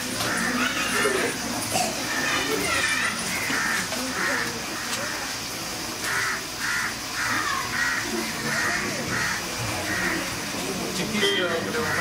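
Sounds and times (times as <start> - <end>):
crows cawing: 0.0 - 1.3, 2.1 - 5.4, 6.0 - 10.5, 11.7 - 12.0
murmur of voices: 0.0 - 12.0.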